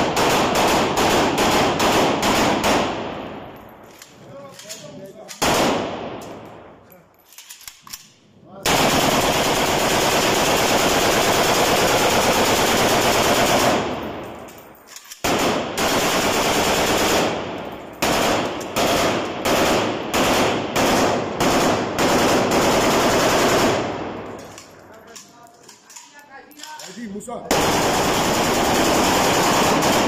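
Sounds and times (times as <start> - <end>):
automatic rifle bursts: 27.5 - 30.0.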